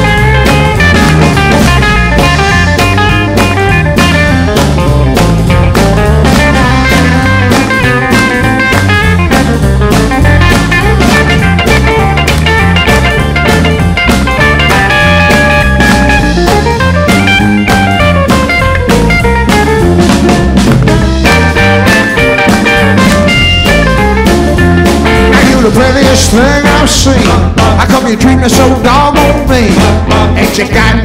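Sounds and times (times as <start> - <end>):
bass guitar: 0.0 - 31.0
drum kit beat: 0.0 - 31.0
electric guitar lead: 0.0 - 31.0.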